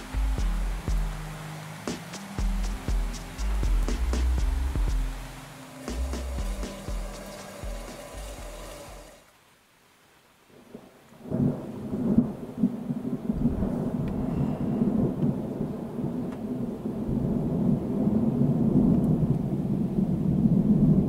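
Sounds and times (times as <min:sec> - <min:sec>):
thunder rumbling: 0:10.8 - 0:21.0.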